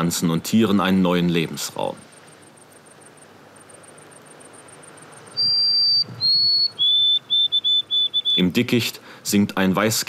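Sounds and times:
faint fast high ticking: 0:01.5 - 0:08.5
sparrow whistling song: 0:02.2 - 0:08.5.

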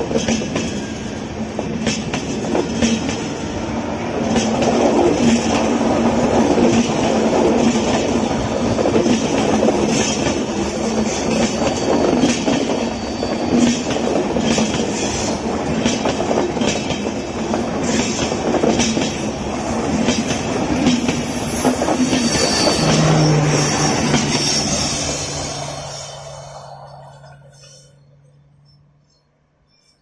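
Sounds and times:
train wheels rumbling on rail: 0:00.0 - 0:29.8
wheels clicking over rail joints: 0:13.5 - 0:24.9.

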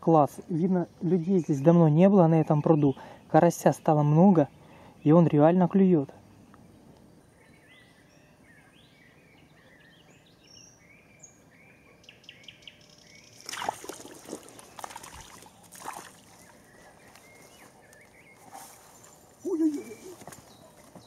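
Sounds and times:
small birds chirping: 0:00.1 - 0:21.0
water splashing: 0:13.4 - 0:16.5.

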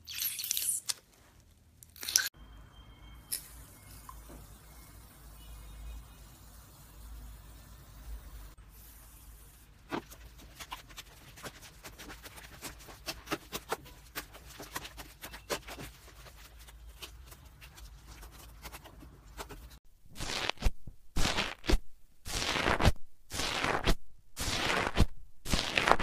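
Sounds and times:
hand kneading slime: 0:09.8 - 0:26.0.

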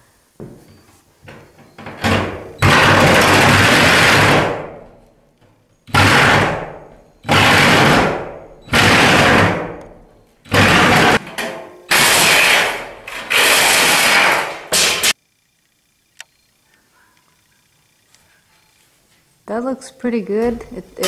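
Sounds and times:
reciprocating saw cutting metal: 0:11.9 - 0:15.2.

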